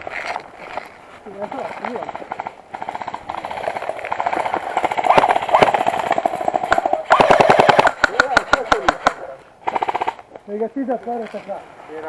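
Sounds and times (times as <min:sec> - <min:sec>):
airsoft gun bursts: 0:02.1 - 0:10.2.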